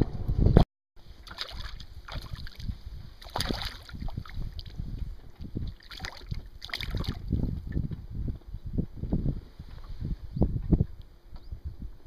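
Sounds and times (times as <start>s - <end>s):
wind buffeting microphone: 0.0s - 12.0s
water lapping around boat: 1.0s - 8.1s.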